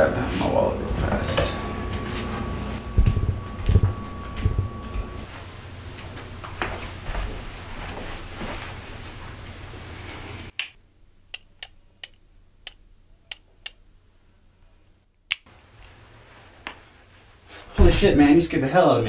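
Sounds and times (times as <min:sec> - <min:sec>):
low room hum: 0:00.0 - 0:19.0
revolver metallic clicks: 0:10.5 - 0:13.8.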